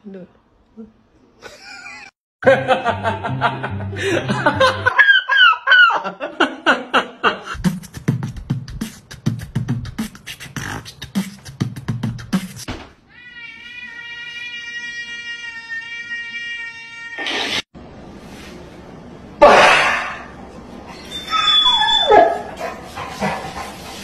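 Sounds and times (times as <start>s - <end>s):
beatboxing: 7.5s - 12.7s.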